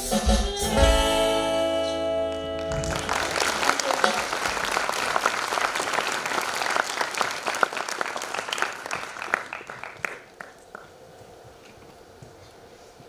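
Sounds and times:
audience applauding: 2.5 - 11.0.

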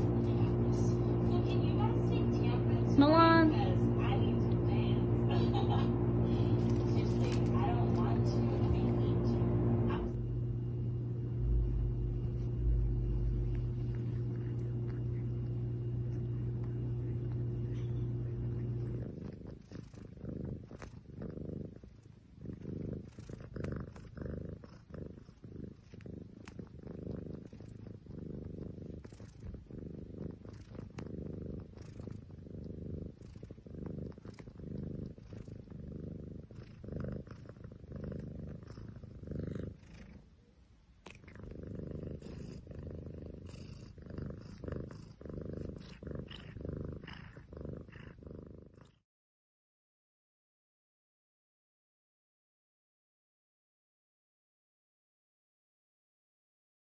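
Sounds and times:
cat purring: 0.0 - 49.0.

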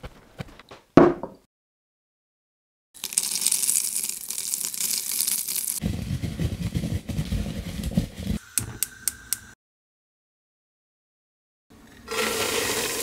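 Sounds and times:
seeds rattling with a hiss: 3.0 - 5.8.

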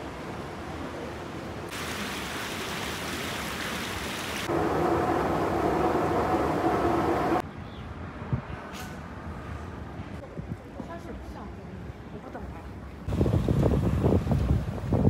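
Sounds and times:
outdoor ambience: 0.0 - 15.0
fountain water splashing: 1.7 - 5.9
loud steady noise with hum: 4.5 - 7.4.

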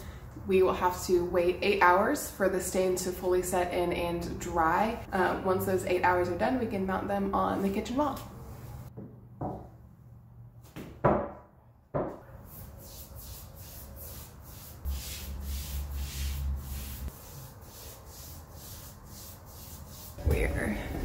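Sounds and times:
foam brush rubbing on wood: 12.5 - 20.2.

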